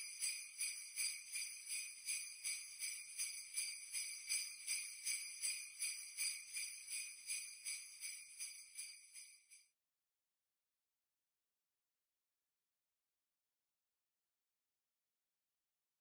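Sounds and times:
jingle bells shaken: 0:00.0 - 0:09.6.

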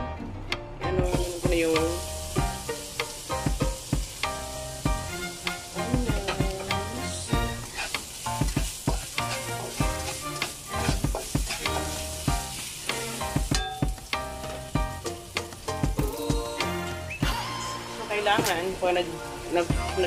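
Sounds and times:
background music: 0:00.0 - 0:20.0
onions sizzling in oil: 0:01.0 - 0:20.0
spatula scraping pan: 0:07.1 - 0:13.5.

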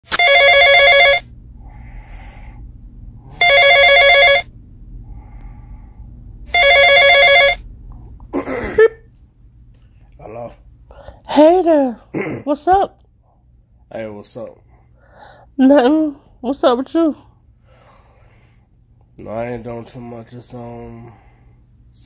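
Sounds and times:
phone ringtone: 0:00.1 - 0:01.2, 0:03.3 - 0:04.5, 0:06.5 - 0:07.6.

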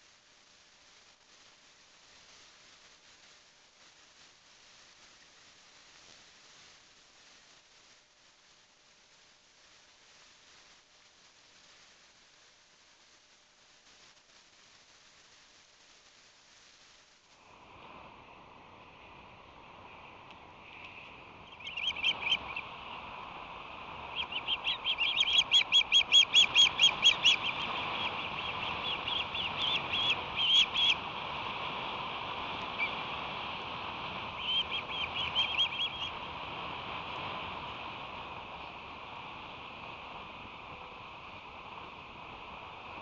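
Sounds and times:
wind hiss: 0:00.0 - 0:43.0
ospreys calling: 0:21.4 - 0:22.7, 0:23.9 - 0:31.1, 0:32.6 - 0:33.0, 0:34.2 - 0:36.2.

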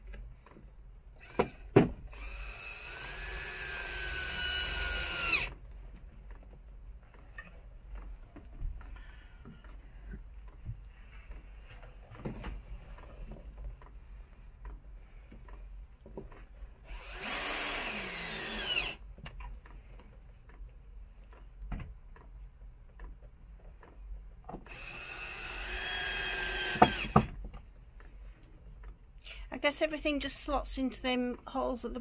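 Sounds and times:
cordless drill motor whirring: 0:01.1 - 0:05.6, 0:16.8 - 0:19.0, 0:24.6 - 0:27.4.

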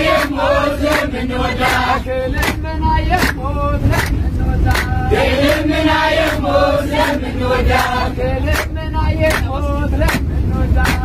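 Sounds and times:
low rumble of bus engine: 0:00.0 - 0:11.0
men and women chanting a hymn: 0:00.0 - 0:11.0
sharp hand claps: 0:02.4 - 0:05.6, 0:08.5 - 0:11.0.

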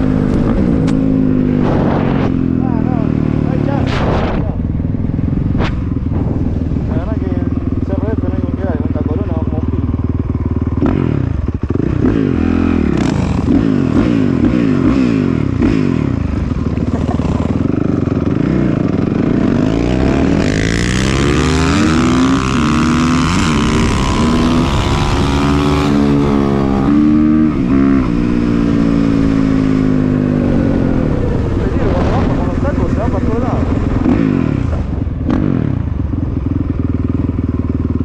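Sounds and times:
wind rushing over microphone: 0:00.0 - 0:09.1, 0:15.3 - 0:36.4
dirt bike engine accelerating: 0:00.0 - 0:38.0.

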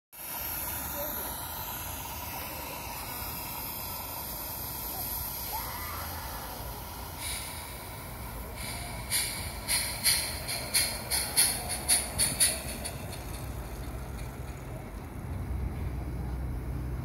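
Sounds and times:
steam locomotive hissing: 0:00.1 - 0:17.0
sharp exhaust chuffs: 0:00.2 - 0:16.7.

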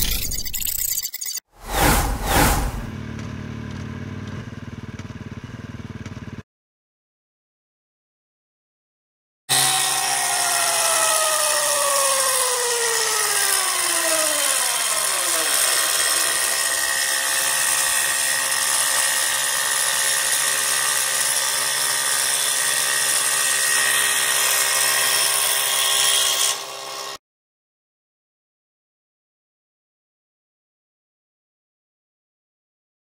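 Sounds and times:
milling machine cutting metal: 0:09.5 - 0:27.2.

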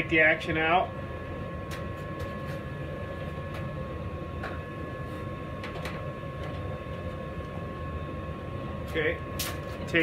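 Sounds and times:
workshop hum: 0:00.0 - 0:10.0.

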